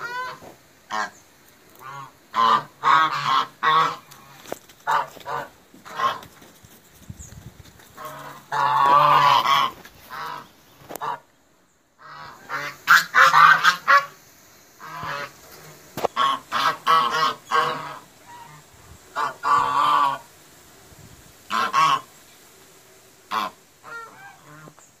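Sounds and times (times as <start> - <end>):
geese honking: 0.0 - 1.2, 1.8 - 6.3, 8.0 - 11.3, 12.0 - 14.2, 14.8 - 20.3, 21.5 - 22.1, 23.3 - 24.8.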